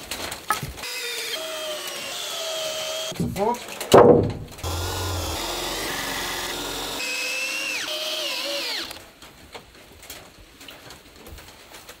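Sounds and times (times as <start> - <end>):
electric drill boring into wood: 0.8 - 3.2, 4.6 - 9.0.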